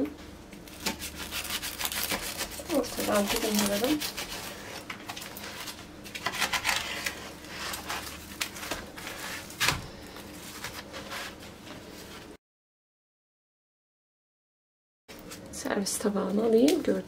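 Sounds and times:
crust crackling and crunching: 0.6s - 11.3s
knife slicing crisp pastry: 0.7s - 4.9s.

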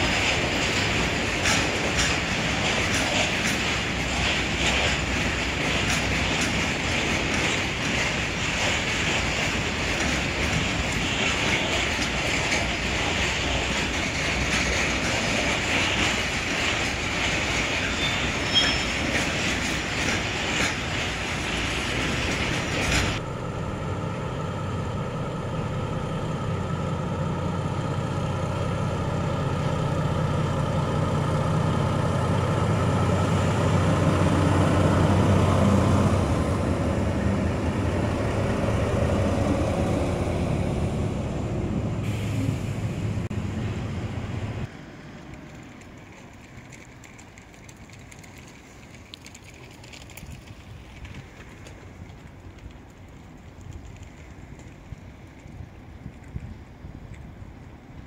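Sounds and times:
diesel locomotive engines running: 0.0s - 58.0s
rushing hiss: 42.0s - 43.3s.

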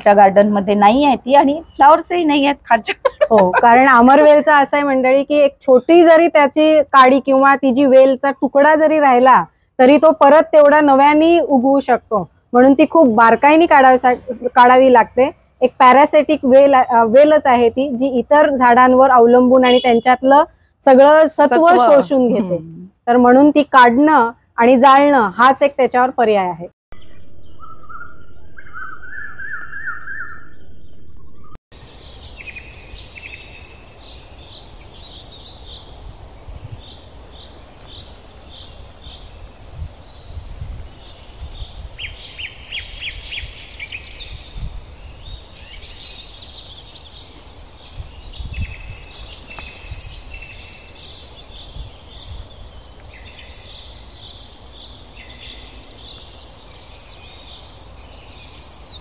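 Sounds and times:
small birds chirping: 0.0s - 15.1s, 15.9s - 23.1s, 26.9s - 59.0s
low wind rumble: 27.1s - 58.7s.

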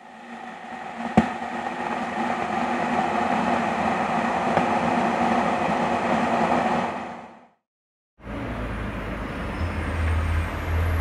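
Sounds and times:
kettle boiling: 0.0s - 6.8s.

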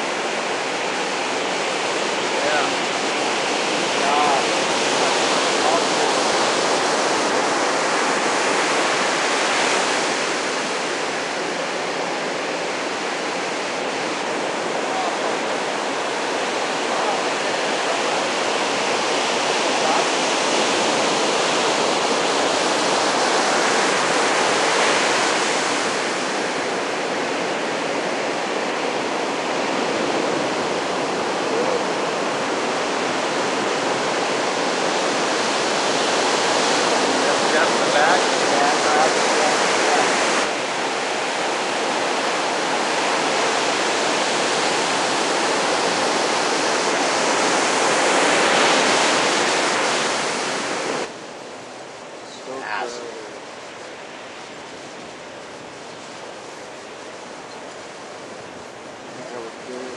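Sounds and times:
ocean surf breaking: 0.0s - 59.9s.

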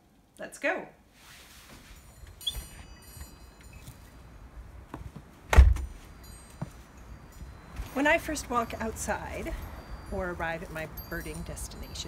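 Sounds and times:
door shutting: 5.5s - 6.0s.

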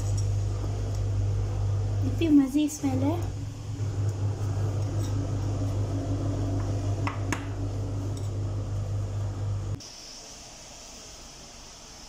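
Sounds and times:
kitchen appliance humming: 0.0s - 9.8s
faint hiss: 9.8s - 12.0s.

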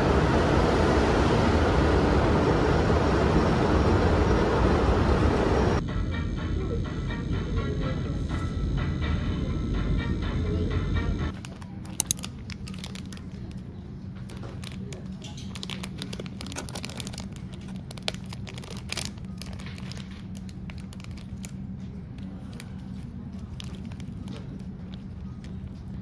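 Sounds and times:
low room hum: 0.0s - 26.0s
background music: 5.8s - 11.3s
plastic wrapper crinkling and tearing: 11.3s - 21.6s, 22.2s - 25.6s.

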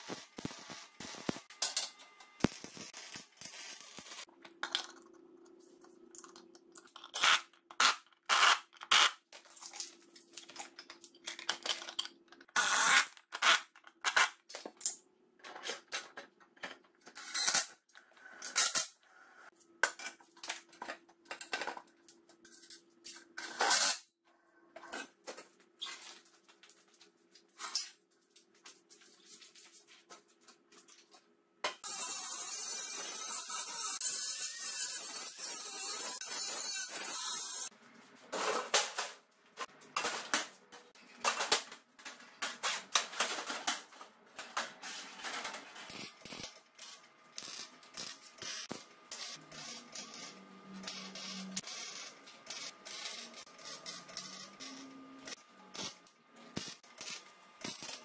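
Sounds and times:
angle grinder cutting steel: 31.8s - 37.7s.

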